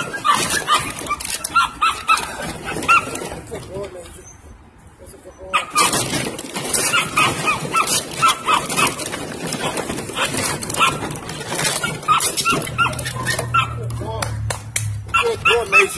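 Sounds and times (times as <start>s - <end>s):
puppies yipping and barking: 0.0s - 4.6s, 5.4s - 14.2s, 14.9s - 15.9s.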